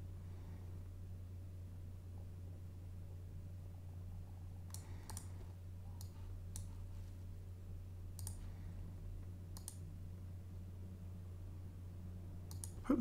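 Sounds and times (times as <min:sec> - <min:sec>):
steady low hum: 0:00.0 - 0:13.0
computer mouse clicking: 0:04.6 - 0:05.4, 0:06.0 - 0:06.8, 0:08.1 - 0:08.5, 0:09.5 - 0:09.8, 0:12.5 - 0:12.8.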